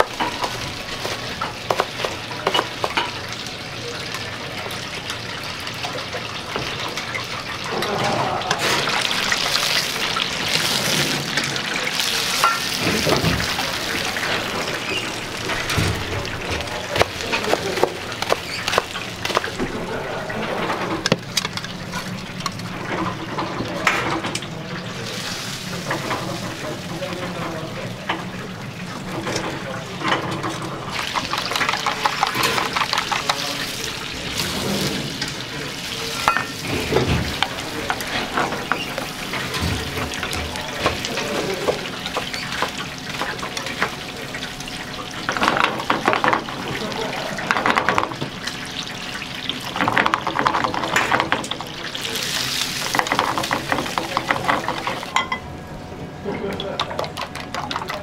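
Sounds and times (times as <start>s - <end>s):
fryer sizzling: 0.0s - 58.0s
chopsticks beating eggs in bowl: 17.0s - 19.6s, 31.0s - 33.7s, 52.2s - 55.0s, 56.6s - 58.0s.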